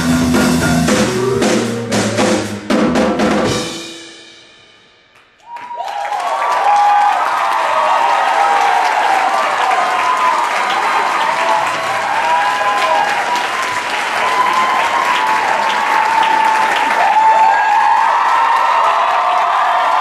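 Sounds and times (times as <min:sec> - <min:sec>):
audience applauding: 0:05.4 - 0:20.0
crowd whooping and cheering: 0:05.4 - 0:20.0.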